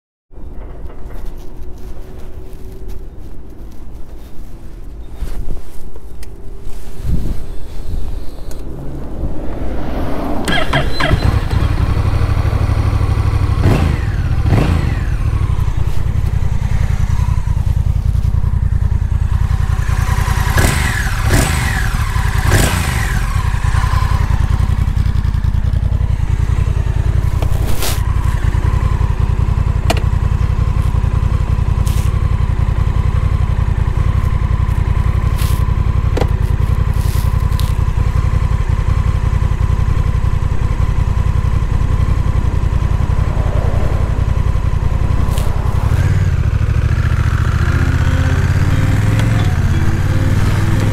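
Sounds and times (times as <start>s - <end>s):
motorcycle engine idling: 10.5s - 50.9s.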